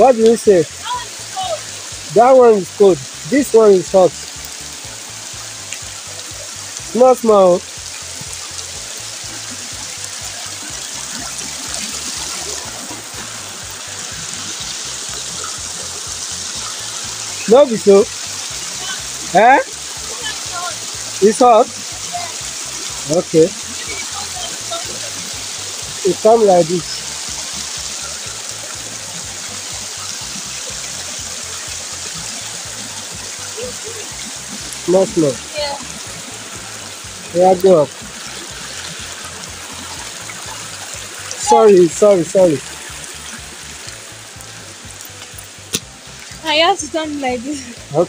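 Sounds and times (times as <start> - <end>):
background music with bass: 0.0 - 48.0
spring water trickling: 0.0 - 48.0.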